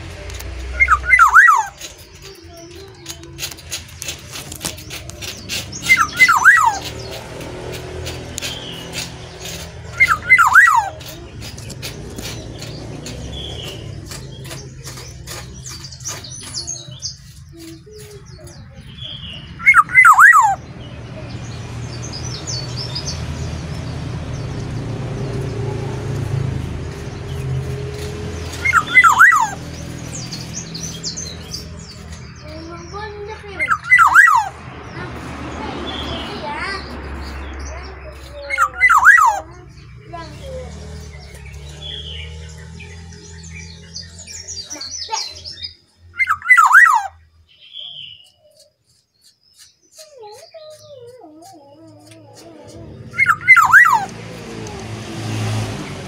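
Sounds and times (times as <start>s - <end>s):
bird fluty whistled song: 0.7s - 3.2s, 5.3s - 7.2s, 8.4s - 12.7s, 13.3s - 20.6s, 28.5s - 32.5s, 33.6s - 34.6s, 38.3s - 39.5s, 41.2s - 51.0s, 53.1s - 54.1s.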